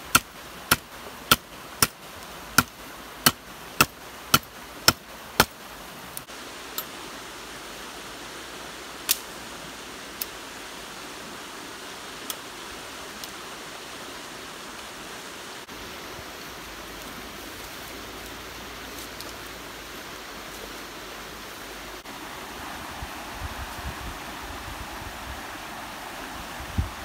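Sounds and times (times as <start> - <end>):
stream flowing: 0.0 - 27.0.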